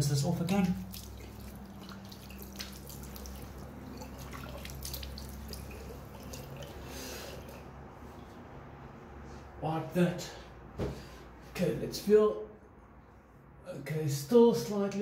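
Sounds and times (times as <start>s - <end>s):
water splashing and dripping: 0.4s - 7.7s.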